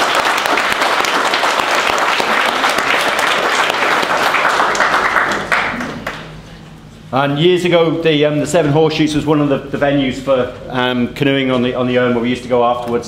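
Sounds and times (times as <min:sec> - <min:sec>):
people applauding: 0:00.0 - 0:06.6.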